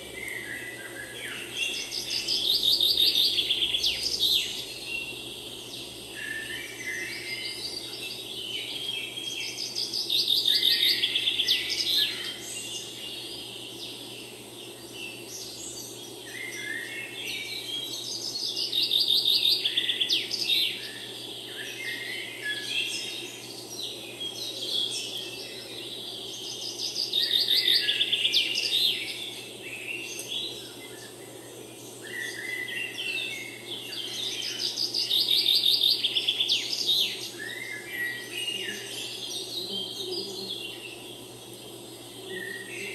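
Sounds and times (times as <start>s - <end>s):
songbirds singing: 0.0s - 42.9s.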